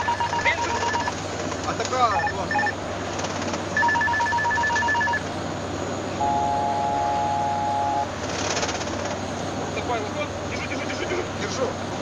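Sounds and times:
steady two-note warning tone: 0.0 - 1.1, 6.2 - 8.1
short electronic beeps: 0.0 - 1.2, 2.1 - 2.8, 3.8 - 5.2
turboprop cockpit drone: 0.0 - 12.0.

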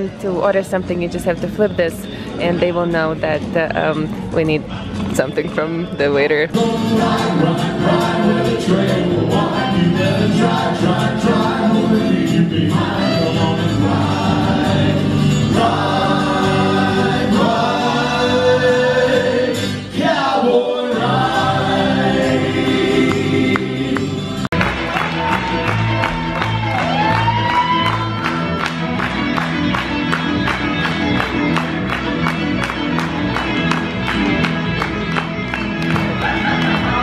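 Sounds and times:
sung vocals: 0.0 - 24.4
live country band: 0.0 - 37.0.

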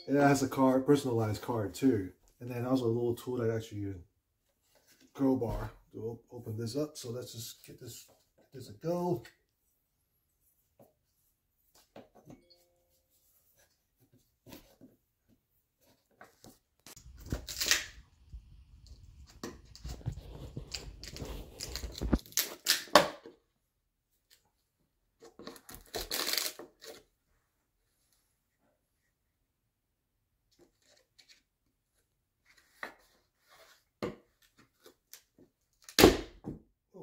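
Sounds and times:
sharp wood crack: 35.9 - 36.4.

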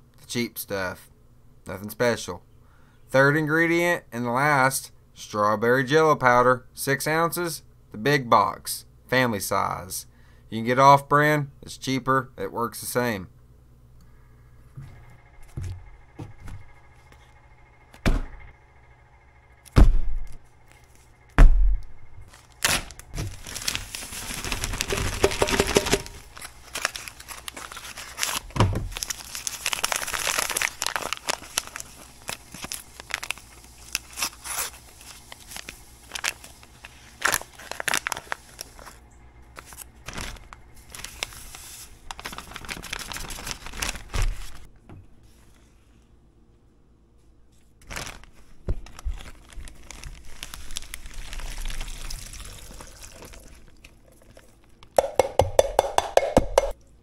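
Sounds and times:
rustling and clicking of mixing: 23.0 - 44.6.

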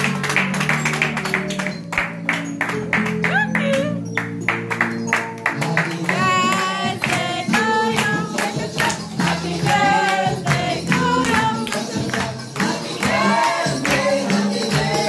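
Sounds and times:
steady percussive beat: 0.0 - 15.0
upbeat song with singing: 5.2 - 15.0.

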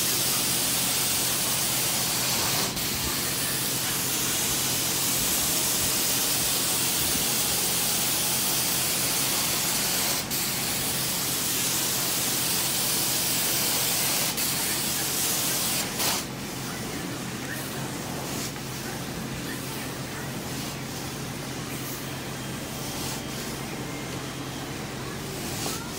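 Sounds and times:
carpet extraction wand spraying: 0.0 - 16.7, 17.6 - 19.8, 22.8 - 23.6.

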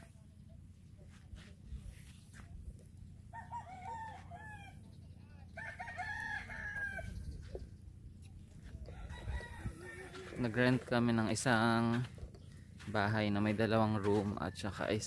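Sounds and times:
low steady rumble: 0.0 - 14.7
rooster crowing: 3.3 - 4.9, 5.5 - 7.3, 8.8 - 10.5.

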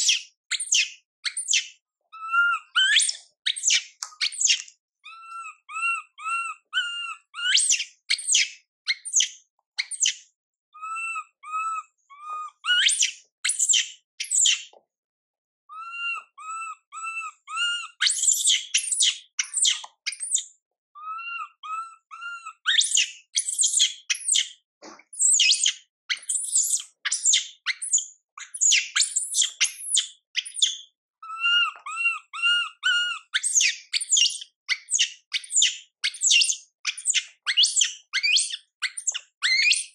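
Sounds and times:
monkey screaming: 2.2 - 3.8, 5.1 - 7.8, 10.8 - 13.1, 15.7 - 20.4, 21.0 - 23.7, 31.2 - 34.3
monkey whimpering calls: 2.2 - 3.8, 4.4 - 7.8, 10.8 - 13.0, 15.7 - 20.4, 21.0 - 23.7, 31.2 - 34.3.

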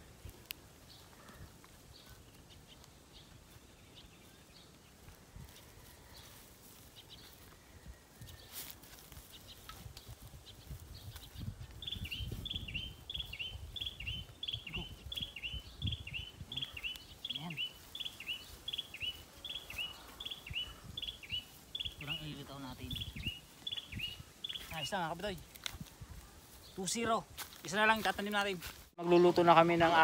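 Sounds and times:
bird chirping: 9.3 - 25.3.

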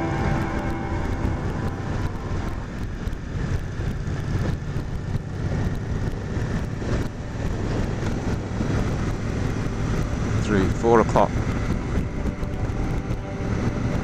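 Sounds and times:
motorcycle engine and road drone: 0.0 - 14.0.

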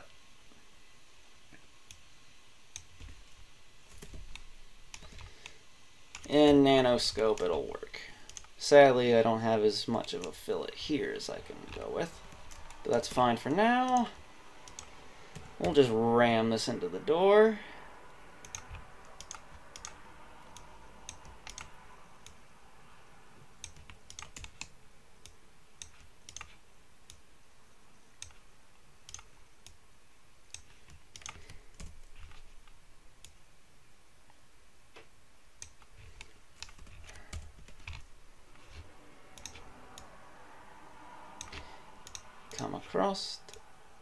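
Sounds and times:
mouse and keyboard clicking: 3.9 - 6.3, 7.1 - 7.5, 8.2 - 8.6, 18.4 - 22.4, 23.6 - 27.2, 29.1 - 29.8, 30.5 - 33.4, 35.6 - 40.1, 41.4 - 42.7.

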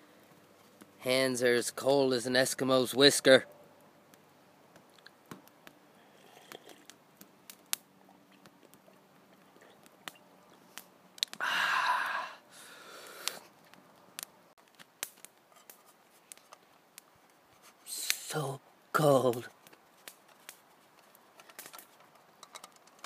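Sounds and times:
slurping sip: 6.1 - 6.9.

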